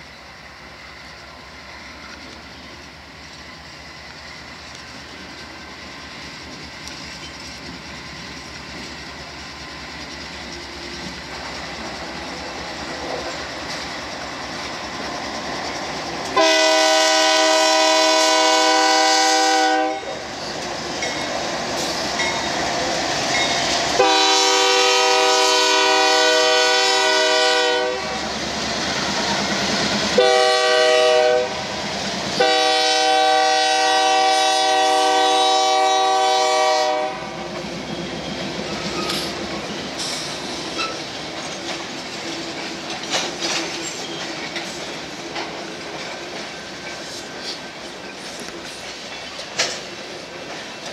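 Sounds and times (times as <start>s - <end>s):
train wheels clicking over rail joints: 0.0s - 18.8s, 20.1s - 25.2s, 28.1s - 30.4s, 37.3s - 50.9s
locomotive air horn: 16.4s - 20.2s, 24.0s - 28.2s, 30.2s - 31.7s, 32.4s - 37.4s.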